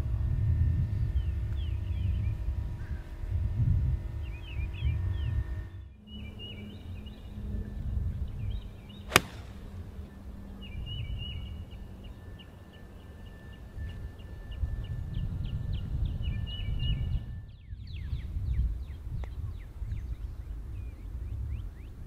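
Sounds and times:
low outdoor rumble: 0:00.0 - 0:13.7
birds chirping: 0:04.2 - 0:17.0
golf club striking ball: 0:09.1 - 0:09.9.

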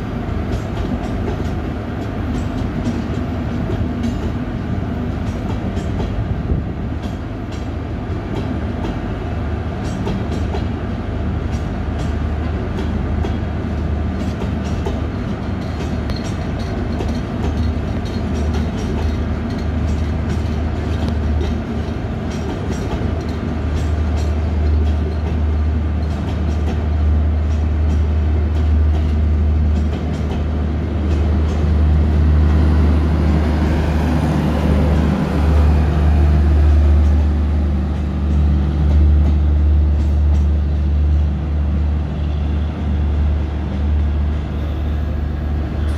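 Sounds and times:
train wheels rumbling on rails: 0:00.0 - 0:45.9
wheels clicking over rail joints: 0:14.2 - 0:32.6.

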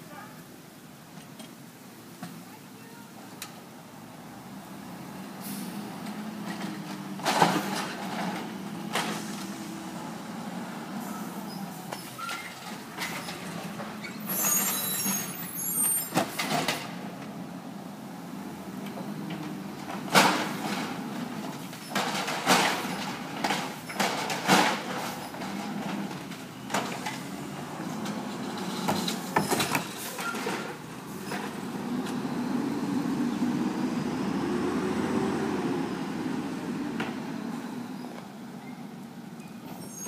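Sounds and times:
hiss: 0:05.4 - 0:05.9
bins clanking and knocking: 0:06.0 - 0:09.9, 0:11.9 - 0:17.4, 0:18.8 - 0:32.2.

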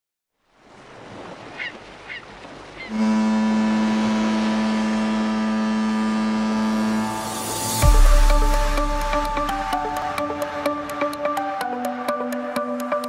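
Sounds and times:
waves: 0:00.3 - 0:13.0
wind: 0:00.3 - 0:13.0
ship's horn blast: 0:02.9 - 0:11.7.

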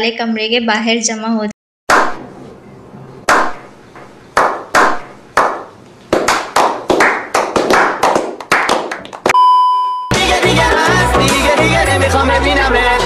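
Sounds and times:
slow hand clapping: 0:04.4 - 0:09.4.

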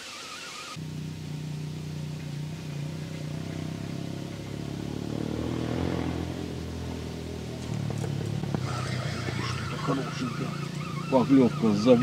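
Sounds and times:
engine humming: 0:00.0 - 0:12.0.

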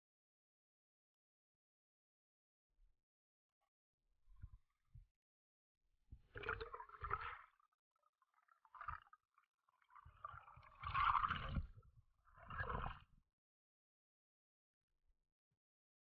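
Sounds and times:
underwater air bubbles gurgling: 0:09.8 - 0:11.8.

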